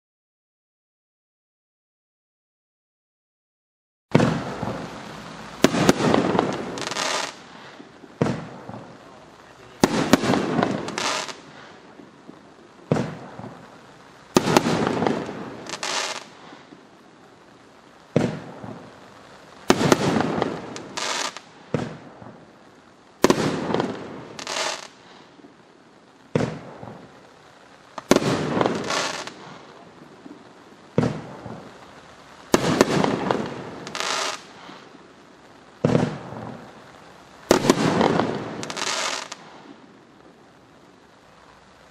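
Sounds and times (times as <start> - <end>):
firework launch thump: 4.1 - 5.0
firework shell bursting: 4.1 - 11.7
firework crackling: 4.1 - 41.9.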